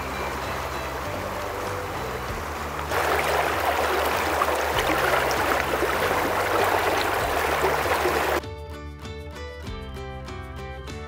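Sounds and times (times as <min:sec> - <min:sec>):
river rushing over stones: 0:00.1 - 0:08.4.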